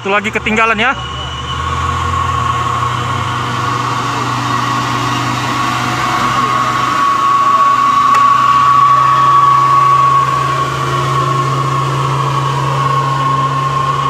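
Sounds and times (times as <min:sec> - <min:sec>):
high whine: 0:00.0 - 0:14.0
truck diesel engine drone: 0:00.0 - 0:14.0.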